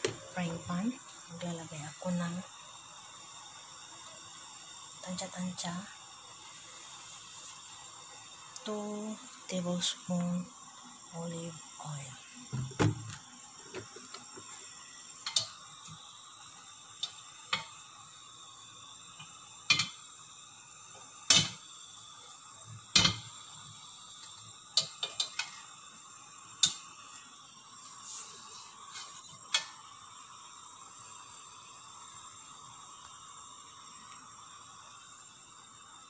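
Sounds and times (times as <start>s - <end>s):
faint steady hum: 0.0s - 36.0s
wok clicks and taps: 17.0s - 17.7s, 19.7s - 20.0s, 24.8s - 25.6s.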